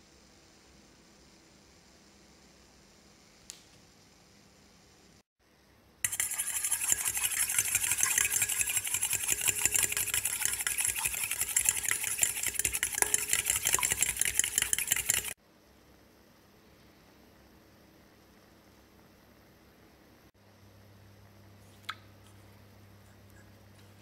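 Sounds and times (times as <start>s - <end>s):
fork whisking in metal bowl: 6.1s - 15.4s.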